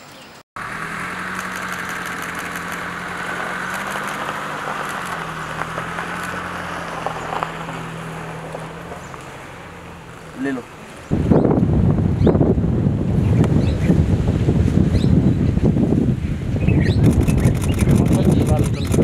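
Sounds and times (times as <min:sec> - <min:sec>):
vehicle engine idling: 0:00.6 - 0:11.1, 0:17.0 - 0:19.0.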